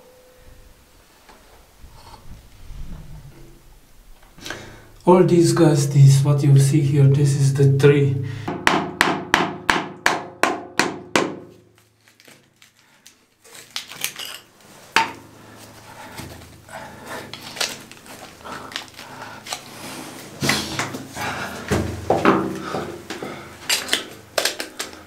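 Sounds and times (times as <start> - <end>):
sharp knocks in concrete tank: 8.4 - 11.5, 21.7 - 22.6
roots scraping and rustling: 15.6 - 20.4.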